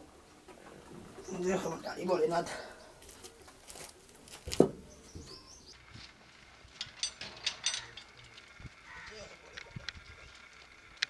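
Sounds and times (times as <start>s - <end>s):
birds chirping faintly: 0.0s - 6.4s.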